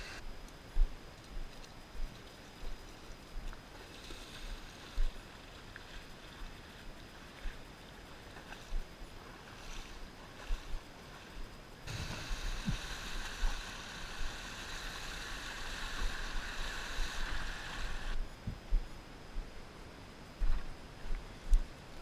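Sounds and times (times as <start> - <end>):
water splashing and lapping: 3.6 - 18.2
water rushing over rocks: 11.9 - 18.2.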